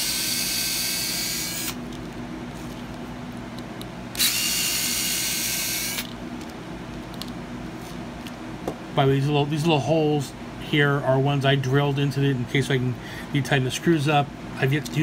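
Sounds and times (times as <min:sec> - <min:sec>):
electric screwdriver whirring: 0:00.0 - 0:01.8, 0:04.2 - 0:06.1.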